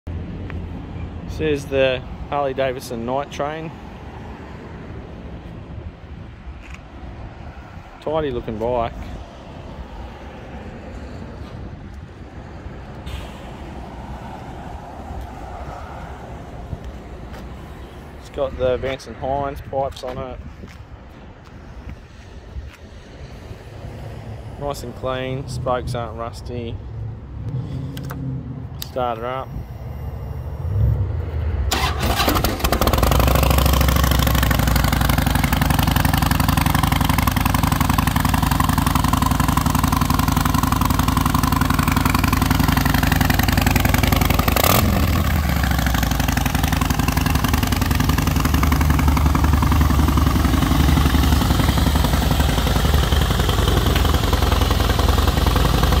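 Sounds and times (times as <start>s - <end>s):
motorcycle electric starter cranking: 31.7s - 35.0s
motorcycle engine idling: 32.7s - 56.0s.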